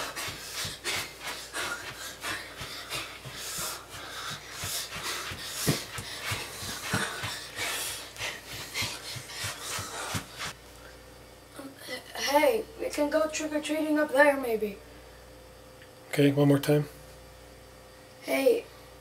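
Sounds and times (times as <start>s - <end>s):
boy panting: 0.0s - 10.6s
feet thudding on floor: 0.0s - 10.6s
heavy thump: 5.0s - 7.4s.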